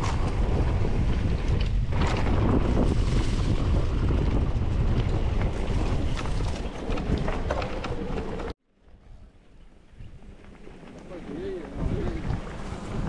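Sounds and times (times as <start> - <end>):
bike clicks and rattles: 0.0 - 8.5
wind buffeting microphone: 0.0 - 13.0.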